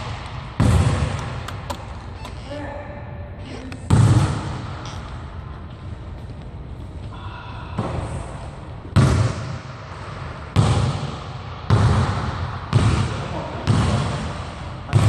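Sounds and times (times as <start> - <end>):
basketball bouncing on hardwood floor: 0.6 - 1.7, 10.6 - 14.3.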